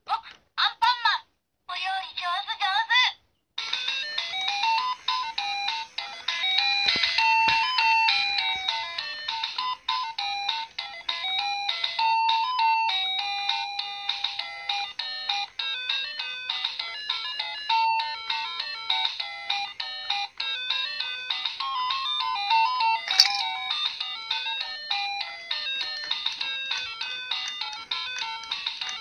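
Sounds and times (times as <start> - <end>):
toy electronic beeping melody: 21.8 - 29.0.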